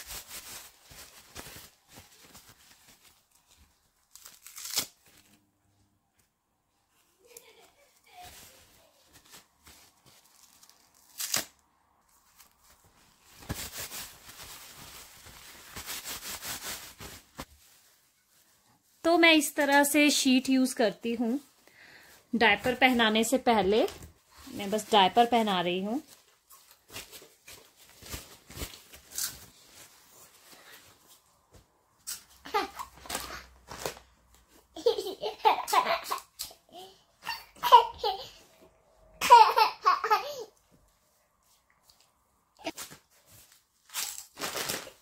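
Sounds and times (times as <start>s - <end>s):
diaper crinkling and rustling: 0.0s - 5.4s, 6.9s - 38.4s, 41.1s - 45.0s
diaper ripping: 4.0s - 5.3s, 8.3s - 11.6s, 26.8s - 29.6s, 32.0s - 34.0s, 43.8s - 45.0s.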